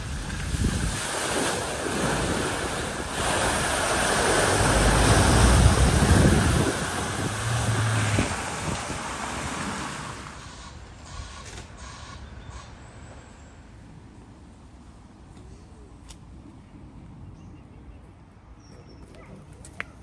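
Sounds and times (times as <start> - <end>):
water rushing and splashing: 0.0 - 11.4
low engine rumble: 2.4 - 11.4.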